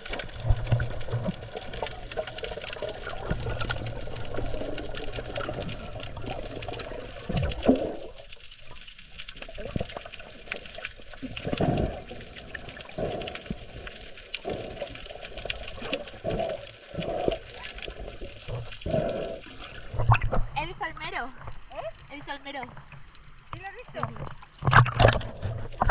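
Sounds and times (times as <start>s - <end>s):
muffled underwater gurgling: 11.1s - 22.6s, 23.6s - 25.9s.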